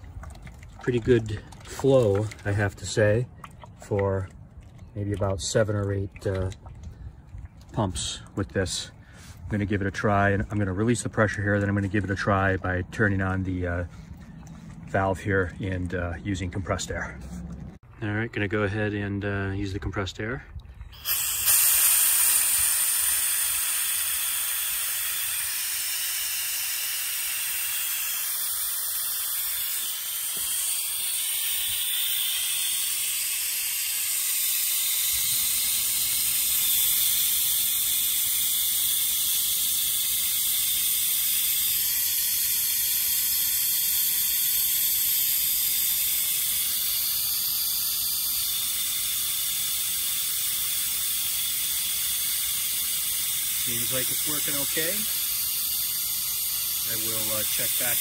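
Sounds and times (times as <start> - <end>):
low steady hum: 0.0 - 58.0
compressed air hissing: 20.9 - 58.0.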